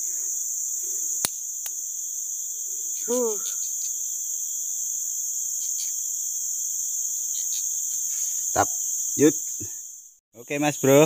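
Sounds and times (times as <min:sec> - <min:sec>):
forest insects droning: 0:00.0 - 0:11.0
person humming: 0:03.1 - 0:03.5.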